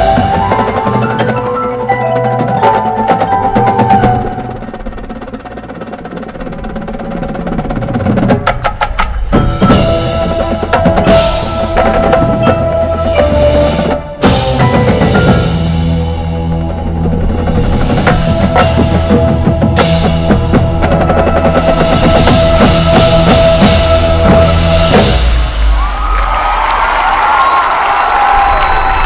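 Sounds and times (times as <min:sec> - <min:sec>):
marching percussion ensemble: 0:00.0 - 0:29.0
run of drum strokes: 0:00.0 - 0:29.0
marimbas holding chords: 0:09.4 - 0:16.7.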